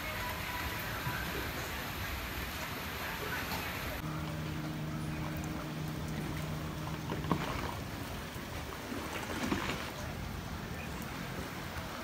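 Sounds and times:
rushing wash of water: 0.0 - 12.0
low engine hum: 3.0 - 12.0.

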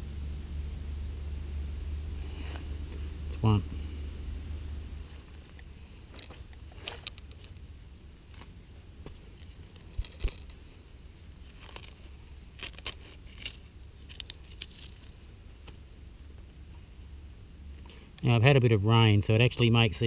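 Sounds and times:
crunches of dirt and leaves: 2.0 - 16.8
stick scraping in stony soil: 8.3 - 15.8
fingers scraping through earth: 8.3 - 15.9.

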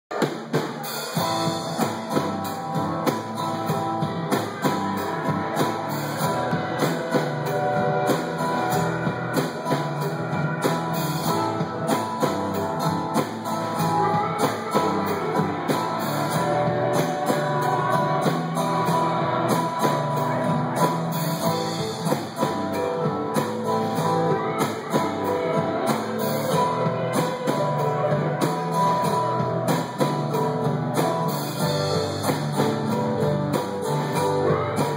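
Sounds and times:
bass guitar: 0.1 - 34.9
drum kit beat: 0.1 - 34.9
strummed acoustic guitar: 0.1 - 34.9.

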